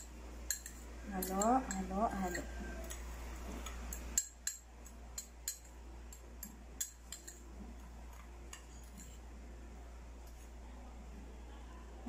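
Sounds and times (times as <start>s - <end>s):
metal spoon clinking ceramic bowl: 0.0s - 3.0s, 3.9s - 7.5s.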